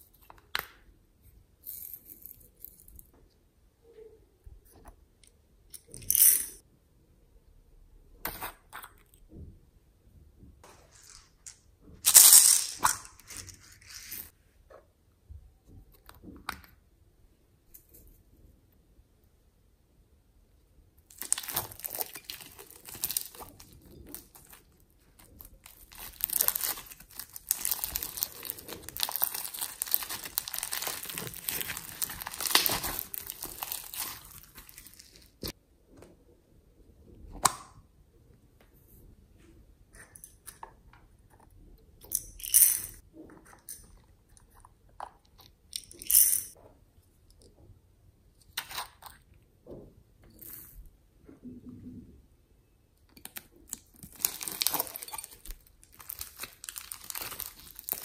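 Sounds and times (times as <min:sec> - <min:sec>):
foam beads crackling: 0:12.0 - 0:14.3, 0:21.1 - 0:35.5, 0:53.7 - 0:58.0.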